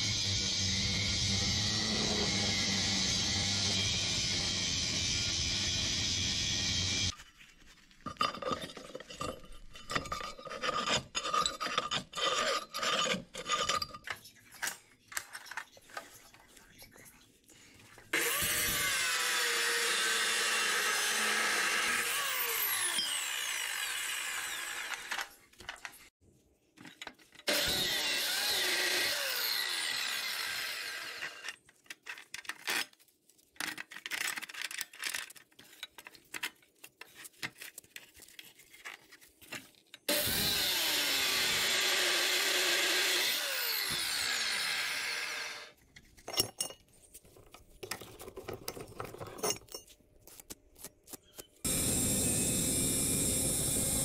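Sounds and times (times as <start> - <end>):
chop saw cutting steel: 0.0 - 7.1, 18.1 - 25.4, 27.5 - 31.6, 40.1 - 45.8, 51.6 - 54.0.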